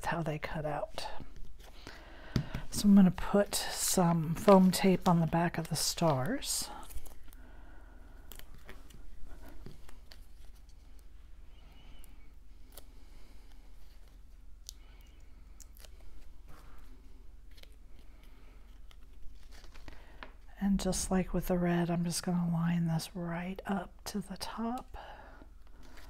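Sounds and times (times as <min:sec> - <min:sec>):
paper rustling: 0:18.7 - 0:20.3.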